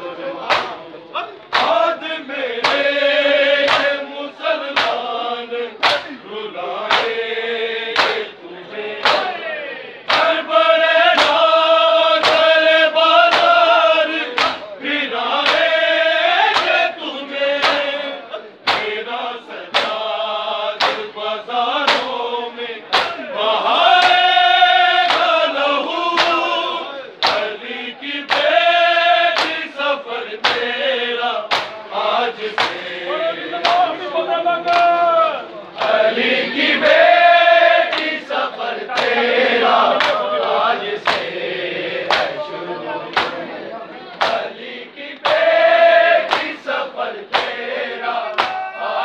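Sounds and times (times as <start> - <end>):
men chanting a lament: 0.0 - 49.0
hands beating on chests: 18.7 - 19.0.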